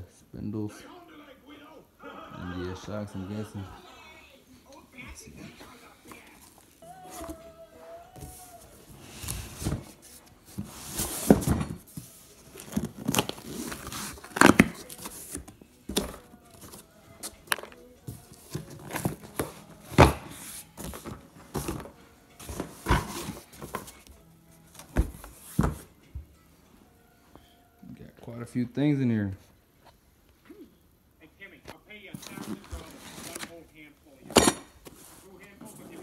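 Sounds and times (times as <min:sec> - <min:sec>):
cardboard scraping and rustling: 0:08.9 - 0:16.8, 0:32.2 - 0:33.5
tape tearing: 0:12.5 - 0:16.8.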